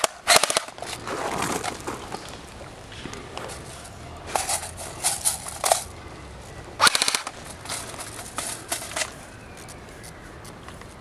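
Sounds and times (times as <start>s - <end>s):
airsoft gun full-auto burst: 0.0s - 0.8s, 6.8s - 7.4s.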